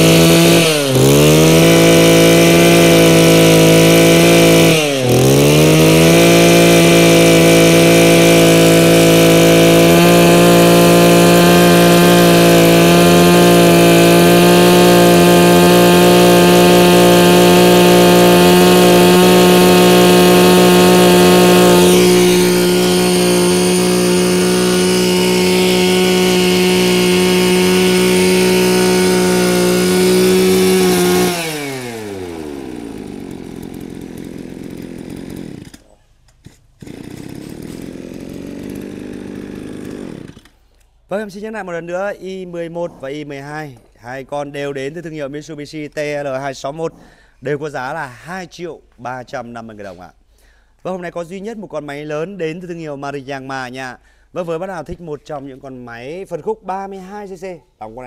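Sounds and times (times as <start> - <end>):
brush cutter engine running: 0.0 - 40.6.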